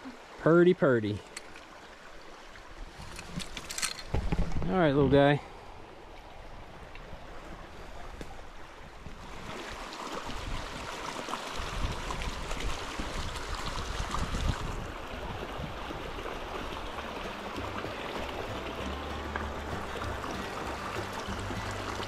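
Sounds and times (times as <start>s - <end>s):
water rushing over stones: 8.4s - 22.0s.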